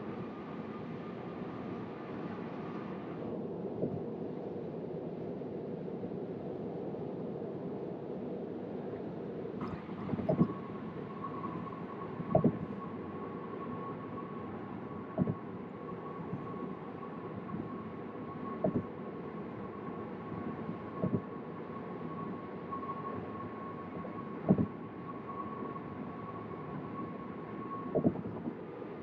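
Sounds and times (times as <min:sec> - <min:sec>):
road and tyre noise: 0:09.6 - 0:29.0.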